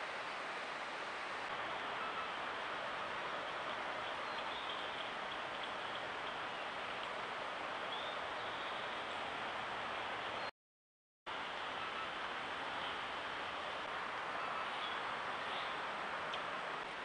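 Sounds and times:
outdoor hiss: 0:00.0 - 0:10.5.

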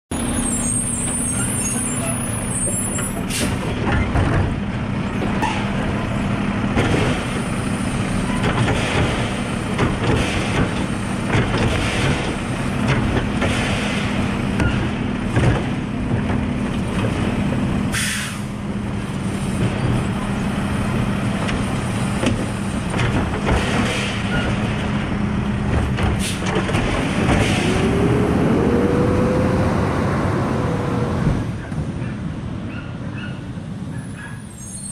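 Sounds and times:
garbage truck diesel engine: 0:00.1 - 0:34.9
truck engine revving: 0:04.8 - 0:31.6
air brake hisses: 0:17.9 - 0:18.5.

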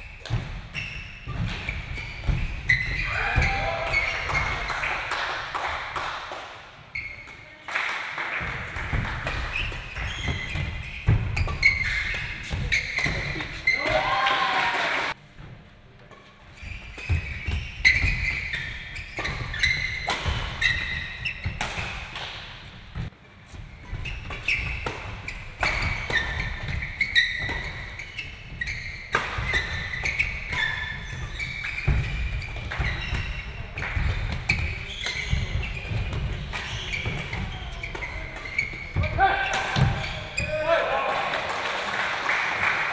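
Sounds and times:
sneakers squeaking on court: 0:00.0 - 0:04.8, 0:09.2 - 0:14.0, 0:16.1 - 0:22.2, 0:22.8 - 0:40.6
rackets hitting shuttlecock: 0:16.9 - 0:22.5, 0:28.6 - 0:40.3.

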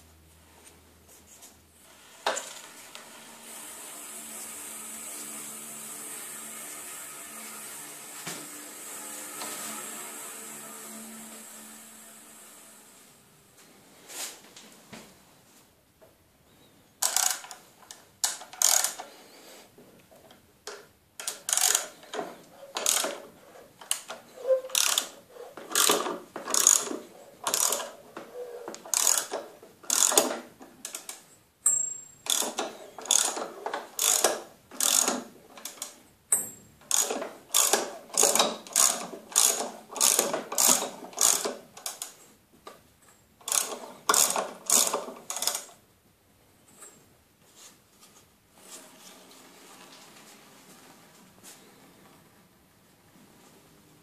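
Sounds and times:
ratchet wrench clicking: 0:17.0 - 0:17.6, 0:18.2 - 0:19.1, 0:21.2 - 0:22.1, 0:22.8 - 0:23.2, 0:24.7 - 0:25.1, 0:25.7 - 0:27.9, 0:28.9 - 0:30.3, 0:31.7 - 0:33.4, 0:34.0 - 0:42.1, 0:43.4 - 0:45.7.

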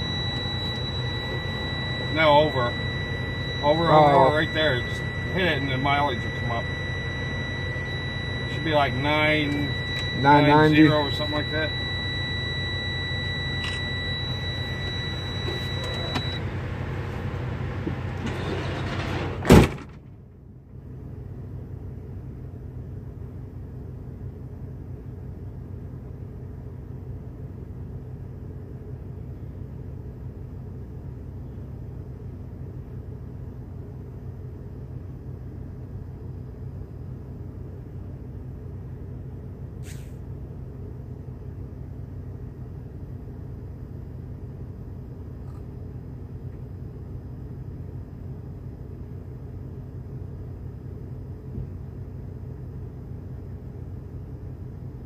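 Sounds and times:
electronic warning tone: 0:00.0 - 0:16.6
truck engine idling: 0:00.0 - 0:55.0
truck door slamming: 0:18.4 - 0:20.1.

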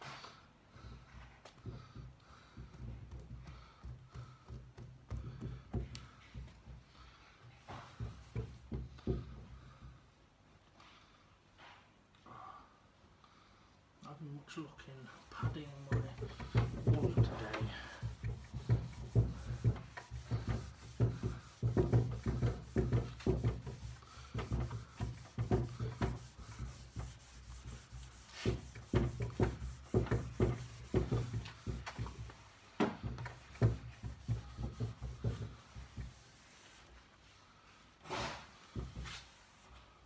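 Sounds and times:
pad scuffing on wood: 0:07.4 - 0:09.8, 0:15.4 - 0:36.8, 0:38.1 - 0:39.4.

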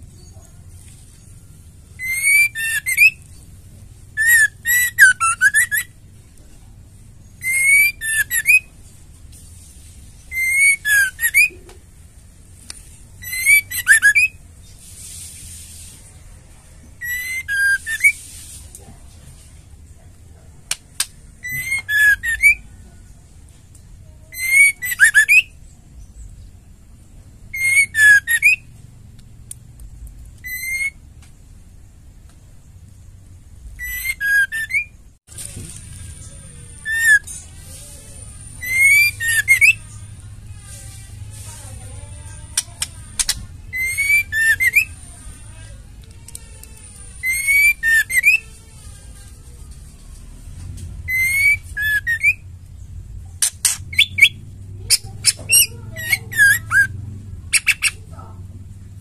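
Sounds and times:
bird singing whistled phrases: 0:02.0 - 0:03.2, 0:04.2 - 0:05.9, 0:07.4 - 0:08.7, 0:10.3 - 0:11.6, 0:13.2 - 0:14.4, 0:17.0 - 0:18.2, 0:21.4 - 0:22.6, 0:24.3 - 0:25.6, 0:27.5 - 0:28.6, 0:30.4 - 0:31.0, 0:33.8 - 0:35.0, 0:36.8 - 0:37.3, 0:38.6 - 0:39.9, 0:43.2 - 0:45.0, 0:47.2 - 0:48.5, 0:51.1 - 0:52.4, 0:53.9 - 0:56.9, 0:57.5 - 0:58.0.

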